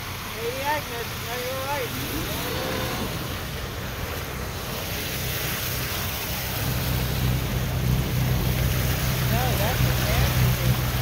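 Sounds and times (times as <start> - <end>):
boat engines droning: 0.0 - 11.0
water wash: 0.0 - 11.0.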